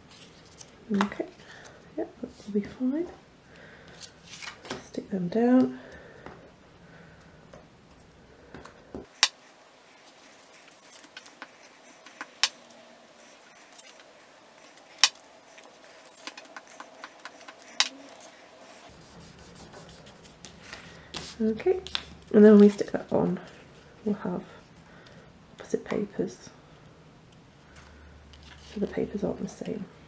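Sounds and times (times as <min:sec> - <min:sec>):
paper and card handling: 0:03.9 - 0:04.8, 0:09.1 - 0:22.9
soft rubbing of paper: 0:09.4 - 0:21.9.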